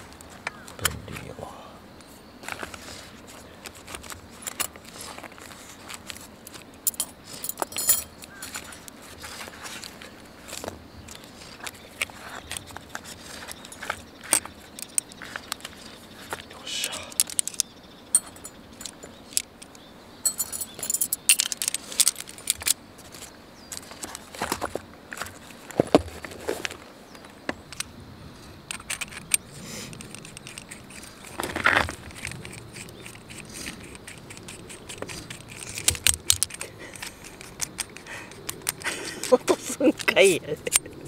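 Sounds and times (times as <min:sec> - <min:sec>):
metal clicks and scrapes: 0:02.5 - 0:16.4, 0:17.1 - 0:24.5, 0:28.7 - 0:41.0
metal stand legs clinking: 0:06.8 - 0:08.7, 0:17.2 - 0:22.8.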